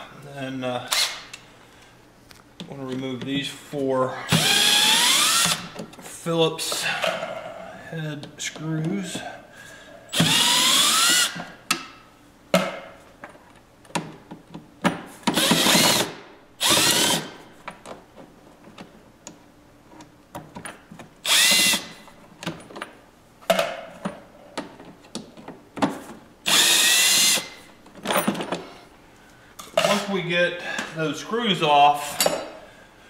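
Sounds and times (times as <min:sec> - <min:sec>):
drill motor whining: 0:04.3 - 0:05.7, 0:10.1 - 0:11.4, 0:15.4 - 0:17.3, 0:21.2 - 0:21.9, 0:26.5 - 0:27.5.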